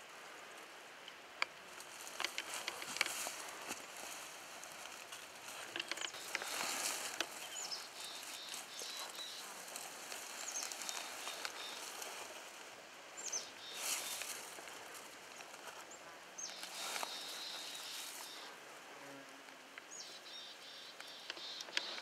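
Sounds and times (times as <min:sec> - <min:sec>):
clothing and gear rustling: 0:01.7 - 0:12.6, 0:16.5 - 0:18.5.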